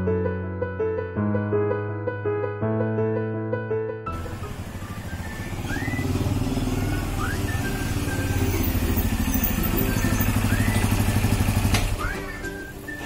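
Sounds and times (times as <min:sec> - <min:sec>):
motorcycle engine idling: 0:04.1 - 0:13.0
faint rising whistle-like notes: 0:04.2 - 0:13.0.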